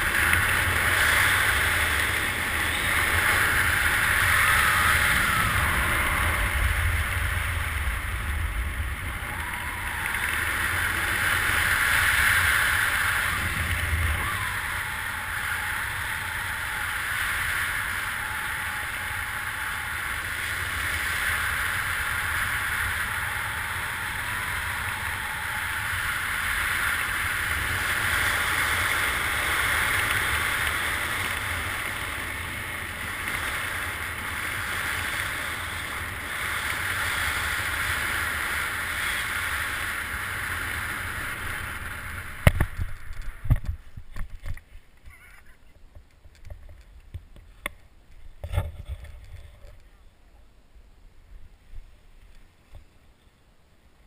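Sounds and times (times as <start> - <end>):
wind rushing over microphone: 0.0 - 45.0.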